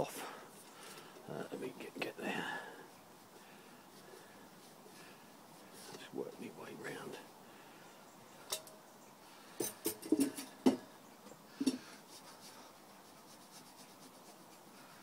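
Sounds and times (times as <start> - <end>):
paper towel rubbing: 12.1 - 15.0.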